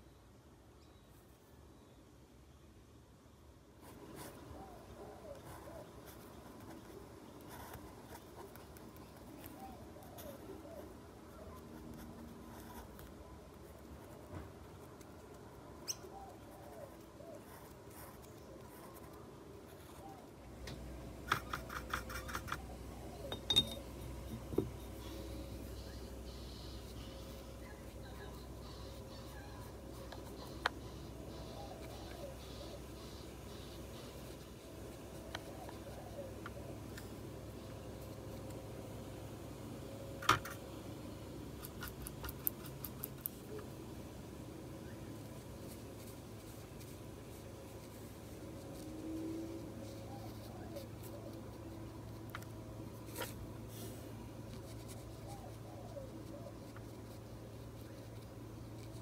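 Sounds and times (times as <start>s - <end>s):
faint low hum: 0.0s - 59.0s
sharp ringing clinks: 23.3s - 23.9s.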